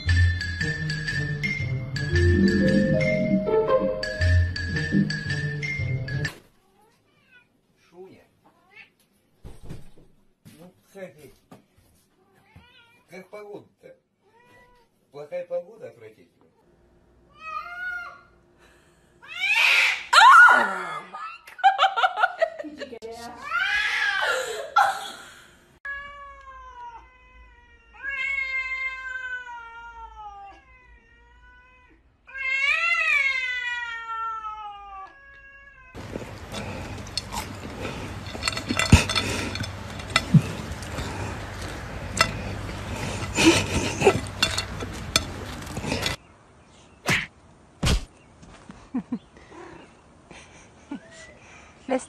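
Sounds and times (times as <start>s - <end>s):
cat meowing: 25.9s - 36.0s.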